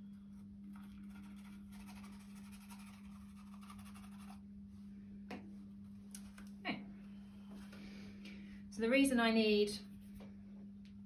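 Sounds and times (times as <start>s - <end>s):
steady low hum: 0.0s - 11.0s
spoon scratching in paper funnel: 0.7s - 4.4s.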